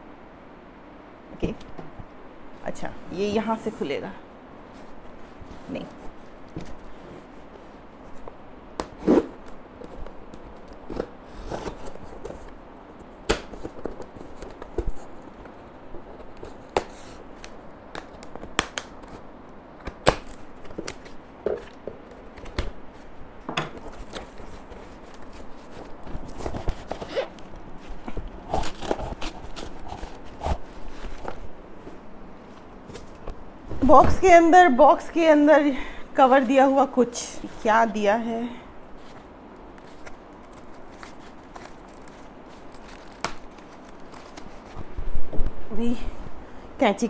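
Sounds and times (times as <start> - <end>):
rustling cardboard and plastic wrapping: 8.9 - 12.6, 13.4 - 19.3, 19.9 - 34.4, 38.8 - 45.4
knife cutting packing tape: 28.4 - 30.6.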